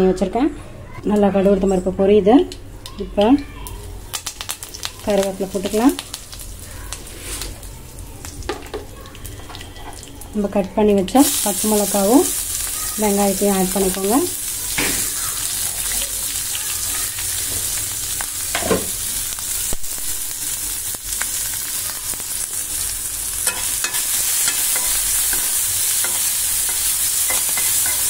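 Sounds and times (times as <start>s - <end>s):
onion and chillies sizzling in oil: 1.1s - 28.0s
spoon scraping the pan: 23.4s - 28.0s.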